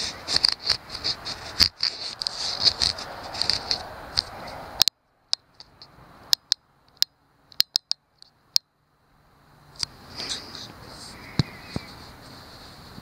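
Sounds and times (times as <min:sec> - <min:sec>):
faint hiss: 0:09.2 - 0:13.0.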